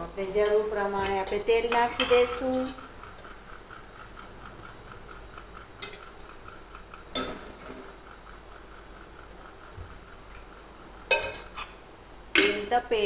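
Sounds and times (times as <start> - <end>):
fast steady ticking: 0.0 - 13.0
steel kitchen vessels clinking: 0.3 - 2.9, 11.1 - 11.8, 12.4 - 13.0.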